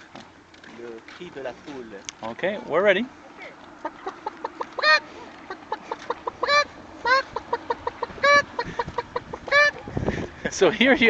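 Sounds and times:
man imitating hen clucking: 0:05.6 - 0:10.1.

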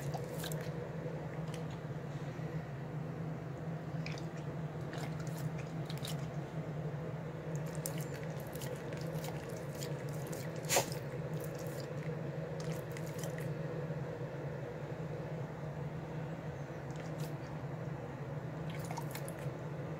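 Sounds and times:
dog licking and smacking: 0:00.0 - 0:01.8, 0:04.0 - 0:06.4, 0:07.6 - 0:13.5, 0:16.9 - 0:17.5, 0:18.6 - 0:19.5
steady low hum: 0:00.0 - 0:19.9.

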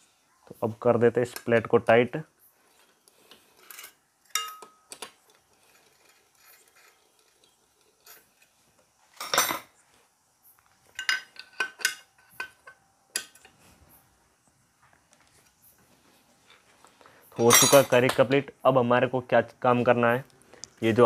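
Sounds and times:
hand tools clinking on metal: 0:03.5 - 0:08.5, 0:10.9 - 0:13.6, 0:17.3 - 0:18.4.

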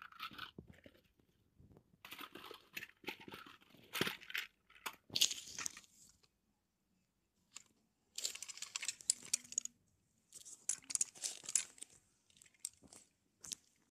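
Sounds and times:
plastic toy rustling clatter: 0:00.0 - 0:01.2, 0:02.0 - 0:06.2, 0:07.5 - 0:09.7, 0:10.4 - 0:13.1.

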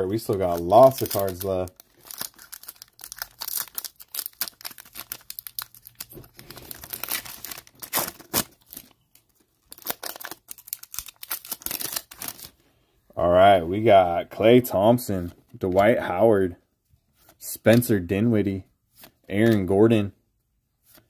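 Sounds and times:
foil wrapper tearing and crinkling: 0:00.2 - 0:08.9, 0:09.7 - 0:12.5.

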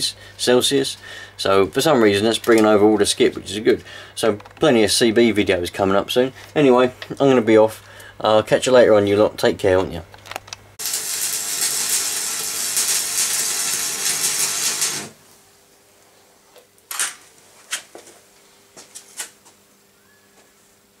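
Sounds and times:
low mains hum: 0:00.0 - 0:21.0
welding arc crackling and hissing: 0:10.8 - 0:15.2.

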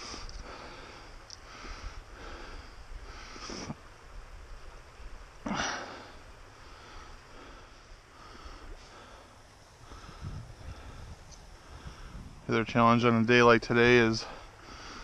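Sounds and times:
person sniffing: 0:03.4 - 0:03.8.

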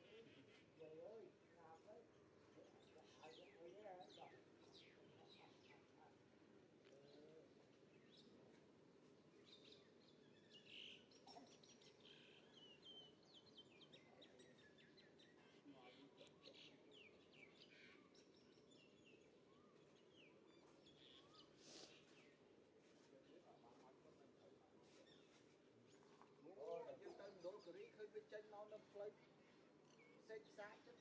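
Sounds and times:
low steady background noise: 0:00.0 - 0:31.0
bird chirps and tweets: 0:02.6 - 0:06.1, 0:09.4 - 0:22.4, 0:29.2 - 0:31.0.

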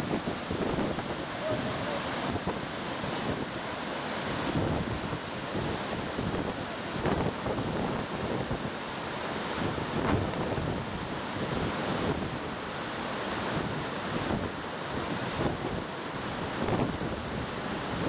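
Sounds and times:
waterfall rushing: 0:00.0 - 0:18.0.

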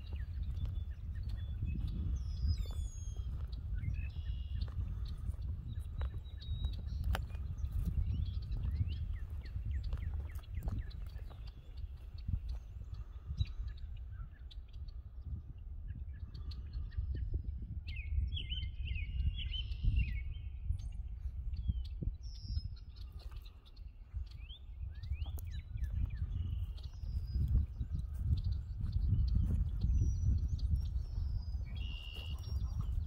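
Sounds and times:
footsteps in grass: 0:00.0 - 0:13.2, 0:25.1 - 0:33.0
birds chirping: 0:00.0 - 0:33.0
wind rumble on microphone: 0:00.0 - 0:33.0.

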